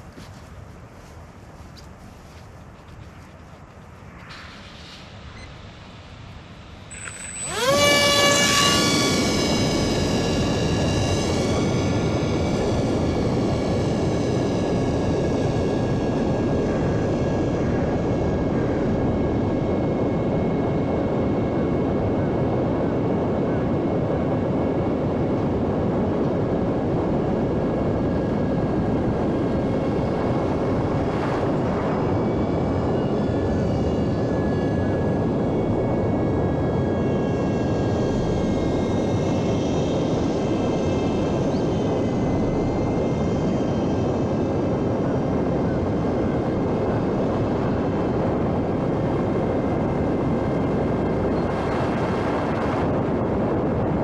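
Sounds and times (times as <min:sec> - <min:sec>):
rush of noise: 0:03.0 - 0:54.0
model airplane motor whine: 0:06.9 - 0:54.0.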